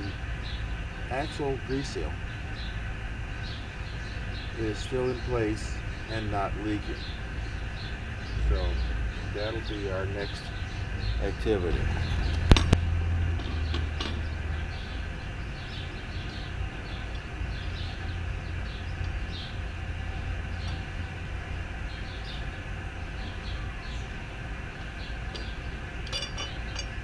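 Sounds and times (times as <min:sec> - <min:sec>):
steady low rumble: 0:00.0 - 0:27.0
lug wrench spinning nuts: 0:25.3 - 0:27.0.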